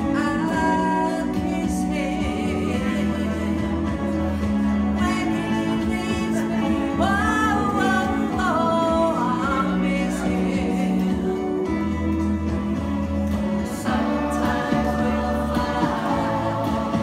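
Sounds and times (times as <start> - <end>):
woman singing: 0.0 - 13.1
music: 0.0 - 17.0.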